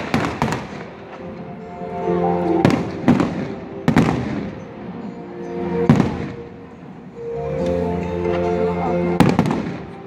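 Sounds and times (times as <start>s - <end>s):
fireworks bursting: 0.0s - 1.4s, 2.5s - 5.0s
background music: 0.0s - 10.0s.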